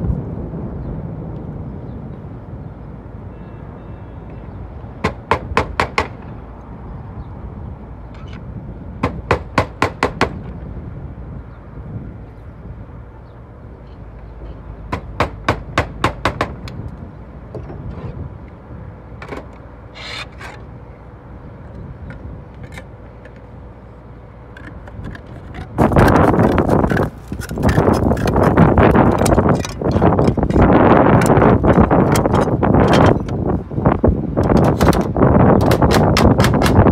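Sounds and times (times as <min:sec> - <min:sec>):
hammer tapping a nail: 0:14.9 - 0:16.8, 0:35.6 - 0:36.9
slate knocks and scrapes: 0:24.6 - 0:33.4
loud rough rustling: 0:24.7 - 0:33.2.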